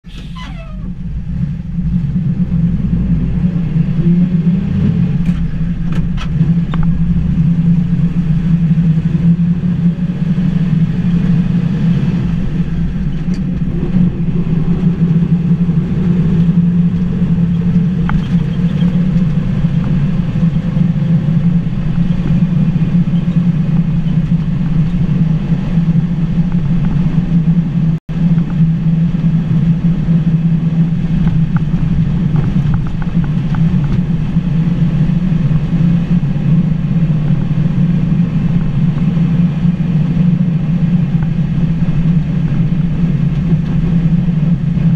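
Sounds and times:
truck engine droning: 0.0s - 44.9s.

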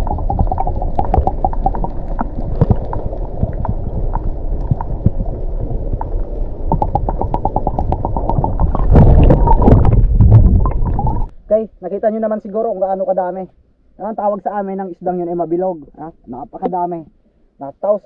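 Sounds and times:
rush of water: 0.0s - 11.3s
underwater rumble of moving water: 0.0s - 11.9s.

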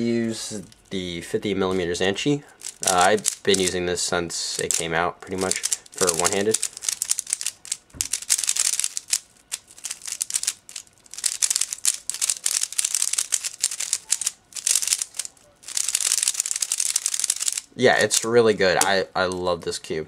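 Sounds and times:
puzzle cube plastic clicking: 2.6s - 3.8s, 4.6s - 19.0s.

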